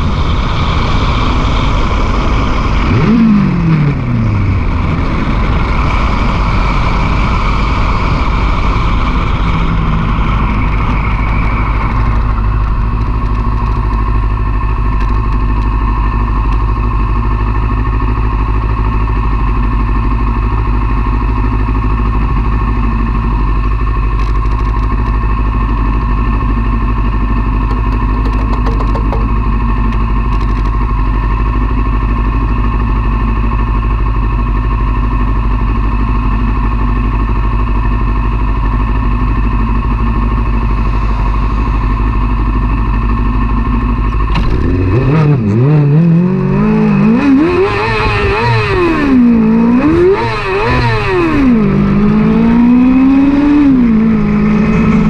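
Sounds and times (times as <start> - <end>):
motorcycle engine: 0.0 - 55.0
wind and road rush: 0.0 - 55.0.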